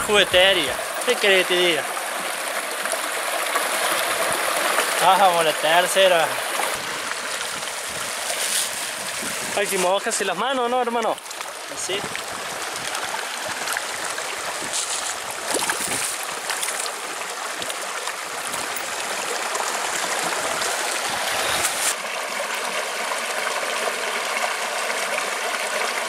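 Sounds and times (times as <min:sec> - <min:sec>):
stream trickling over rocks: 0:00.0 - 0:26.0
hands splashing in water: 0:12.9 - 0:17.0.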